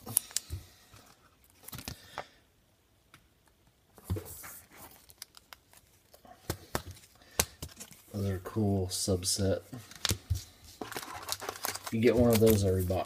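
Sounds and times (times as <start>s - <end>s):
plastic sleeve rustling and clicking: 0.0s - 2.0s, 3.4s - 8.2s, 9.8s - 13.0s.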